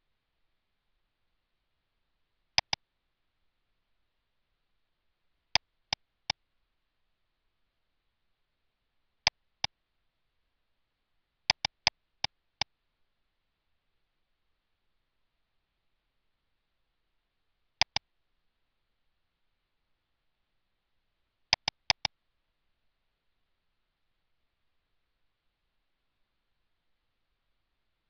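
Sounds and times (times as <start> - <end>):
computer mouse button clicks: 2.6 - 2.8, 11.5 - 11.9, 17.8 - 18.0, 21.5 - 22.1.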